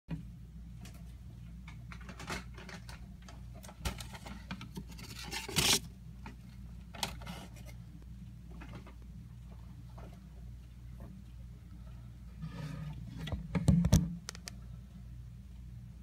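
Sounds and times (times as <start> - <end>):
mice scratching and scrabbling: 1.7 - 7.8.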